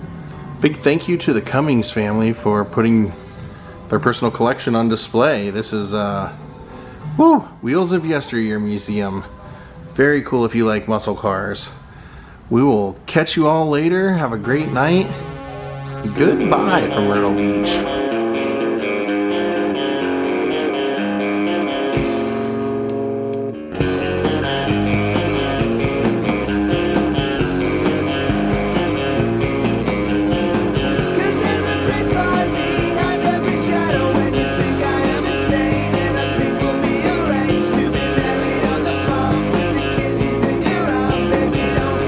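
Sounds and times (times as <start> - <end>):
held electric guitar: 14.4 - 42.0
rock band with drums: 16.2 - 42.0.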